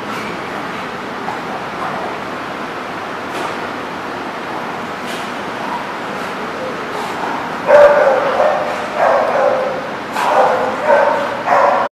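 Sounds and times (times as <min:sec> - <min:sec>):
dogs barking and yipping: 0:06.7 - 0:11.9.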